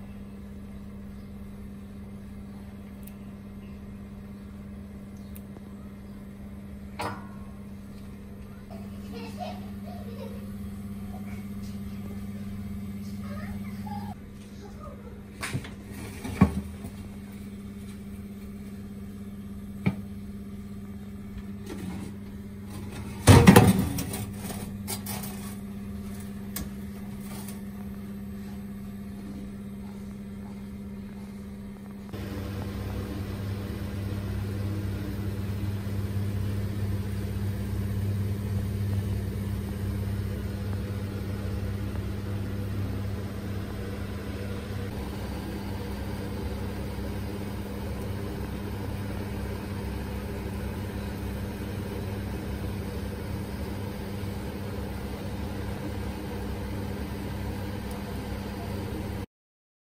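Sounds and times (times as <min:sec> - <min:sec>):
gas oven humming: 0:00.0 - 0:59.3.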